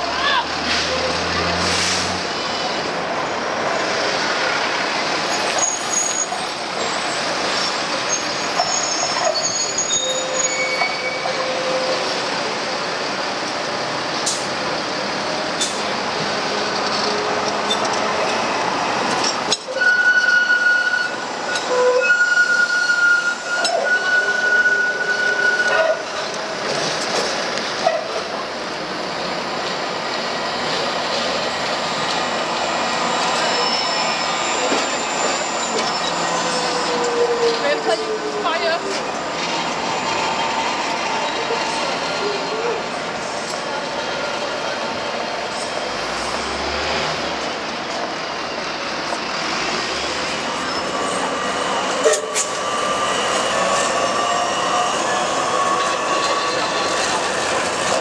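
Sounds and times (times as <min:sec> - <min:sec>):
tram running rumble: 0:00.0 - 0:58.0
high wheel squeal: 0:05.2 - 0:12.4, 0:19.4 - 0:26.4, 0:31.2 - 0:43.6, 0:49.2 - 0:58.0.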